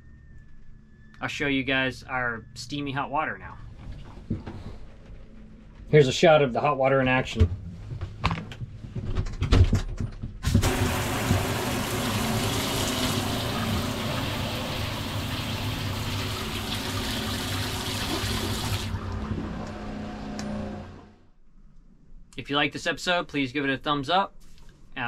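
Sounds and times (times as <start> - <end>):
shower sprayer hissing: 10.5 - 19.0
low hum: 10.6 - 22.4.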